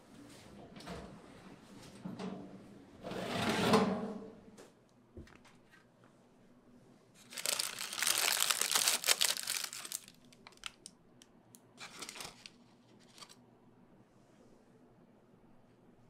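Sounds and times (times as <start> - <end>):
parchment paper crinkling: 7.2 - 10.9, 11.8 - 13.4
soft paper rustles: 7.2 - 10.9, 11.8 - 13.4.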